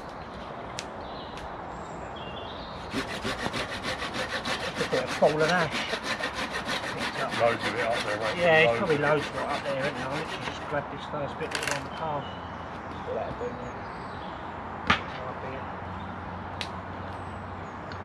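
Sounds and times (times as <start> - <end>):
hand saw cutting branch: 2.8 - 10.8, 11.5 - 12.0.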